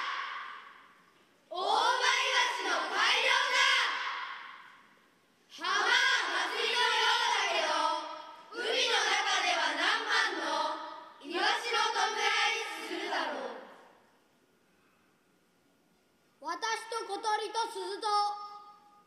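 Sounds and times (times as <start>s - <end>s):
children reciting in unison: 0.0s - 0.8s, 1.5s - 4.7s, 5.5s - 13.8s.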